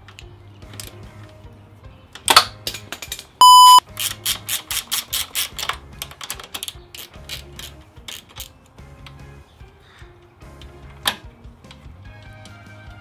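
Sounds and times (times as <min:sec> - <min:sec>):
loud electronic beep: 0:03.4 - 0:03.8.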